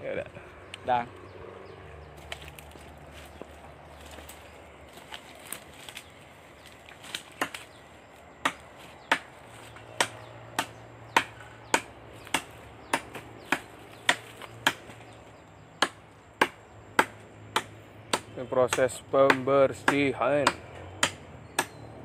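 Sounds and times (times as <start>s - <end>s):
machete chopping branches: 2.2s - 7.8s, 8.4s - 15.2s, 15.8s - 21.8s.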